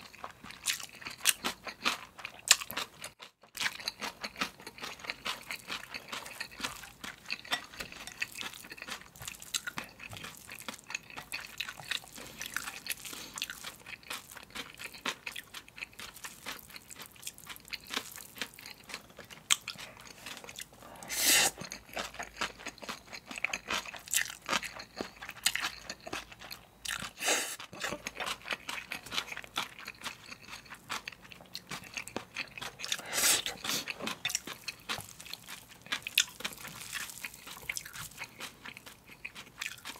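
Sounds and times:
wet chewing and crunching: 0.0s - 39.9s
slurping noodles: 20.8s - 21.7s, 27.1s - 28.0s, 32.8s - 34.2s.

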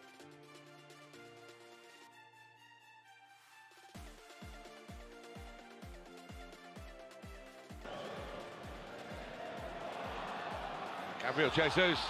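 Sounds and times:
deep electronic kick drum beat: 4.0s - 11.2s.

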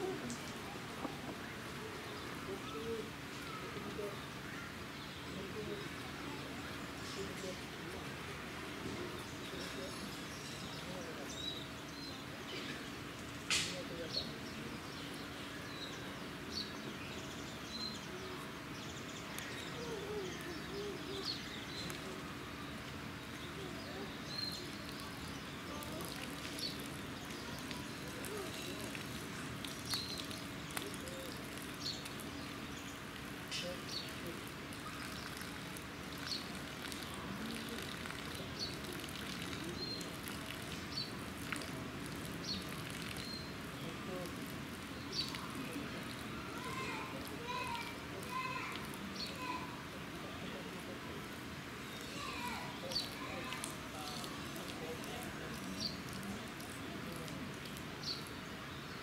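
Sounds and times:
background hiss: 0.0s - 59.0s
small birds chirping: 0.0s - 59.0s.

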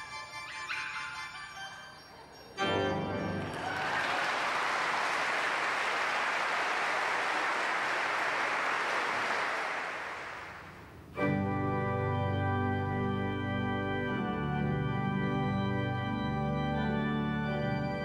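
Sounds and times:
pipe organ chords: 0.0s - 4.0s, 11.1s - 18.0s
audience applauding: 2.7s - 10.8s.

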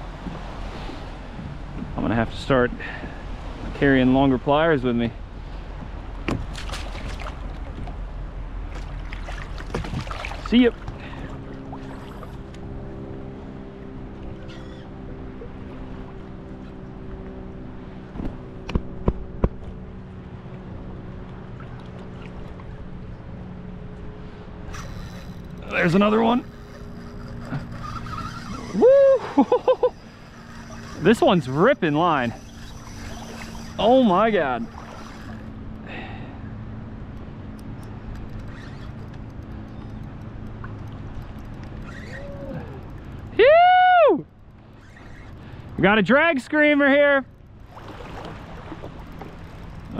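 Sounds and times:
choppy water: 0.0s - 49.9s
steady low hum: 0.0s - 49.9s
wind: 0.0s - 49.9s
fishing reel drag buzzing: 10.4s - 13.1s, 14.2s - 15.1s, 24.6s - 36.6s, 37.5s - 43.5s, 44.2s - 46.5s, 47.3s - 49.9s
sharp clicks: 37.1s - 43.4s.

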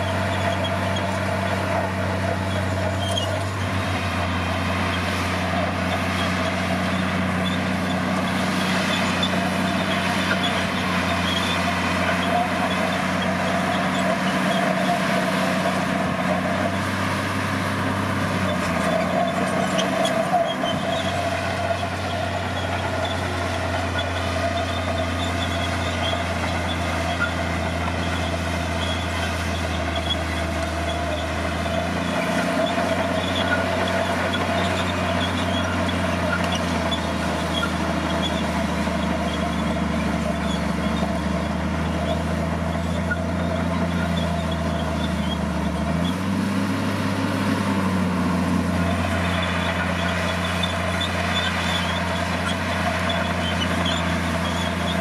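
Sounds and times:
bulldozer diesel engine: 0.0s - 55.0s.

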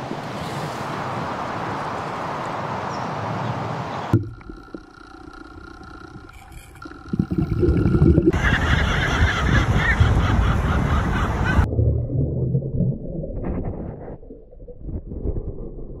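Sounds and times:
sea water and surf: 0.0s - 12.0s
steady underwater tones: 4.1s - 16.0s.

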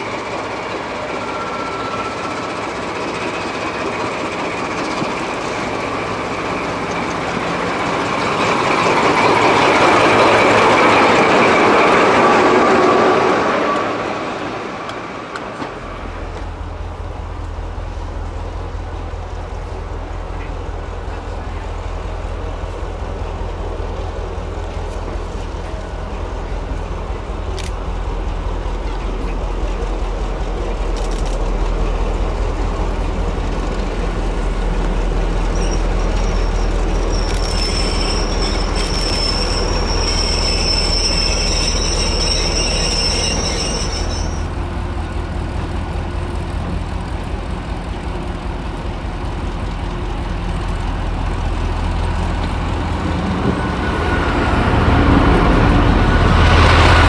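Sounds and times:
train wheels squealing: 0.0s - 14.4s, 35.2s - 44.7s, 52.7s - 57.0s
diesel locomotive engine throb: 0.0s - 57.0s.

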